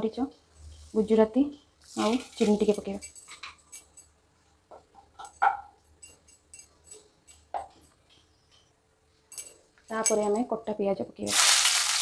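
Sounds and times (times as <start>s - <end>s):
spices sizzling in hot oil: 11.3s - 12.0s.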